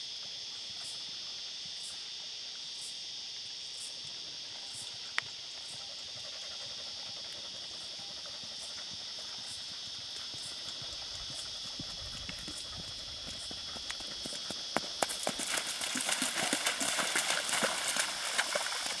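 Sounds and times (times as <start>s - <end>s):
hoofbeats on sand: 8.5s - 19.0s
horse hooves splashing in water: 11.8s - 19.0s.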